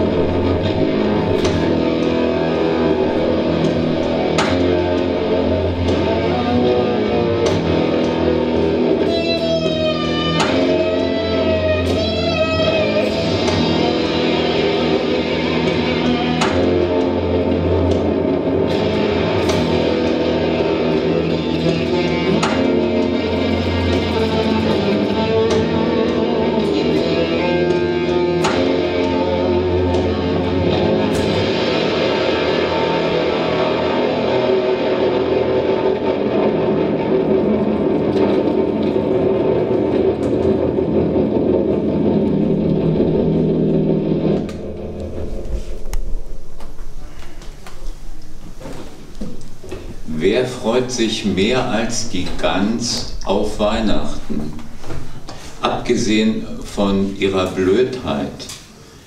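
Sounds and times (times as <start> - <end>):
electric guitar chords and notes: 0.0 - 59.0.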